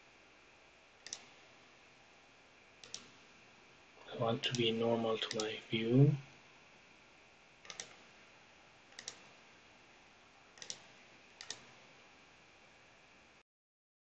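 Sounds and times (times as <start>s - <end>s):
steady low hiss: 0.0s - 13.4s
computer mouse clicks: 1.0s - 1.4s, 2.8s - 3.2s, 4.5s - 5.5s, 7.6s - 8.1s, 8.9s - 9.4s, 10.6s - 11.8s.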